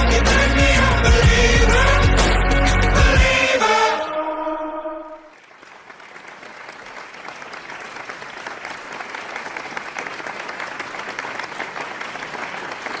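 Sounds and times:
audience applauding: 0:05.2 - 0:13.0.

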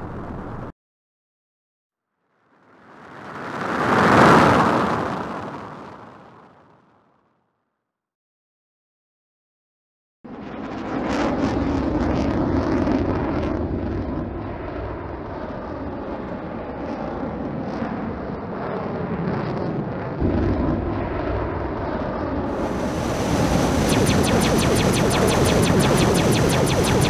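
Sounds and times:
spaceship engine rumble: 0:20.2 - 0:27.0
whooshes: 0:22.5 - 0:27.0.

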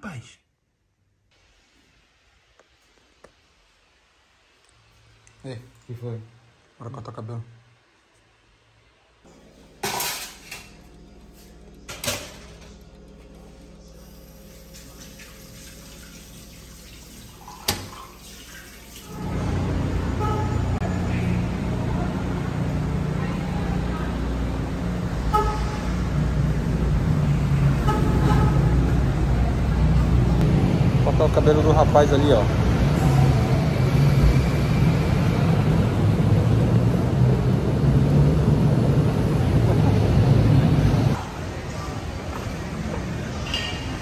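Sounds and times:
street traffic noise: 0:19.1 - 0:44.0
moving car hum: 0:19.2 - 0:31.3, 0:32.2 - 0:43.4
low engine hum: 0:32.5 - 0:43.4.

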